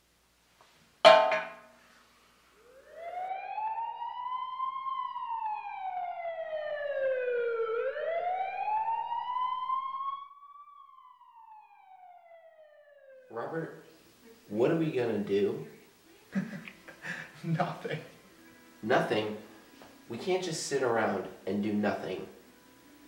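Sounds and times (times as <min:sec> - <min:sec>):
wailing siren: 0:02.5 - 0:13.8.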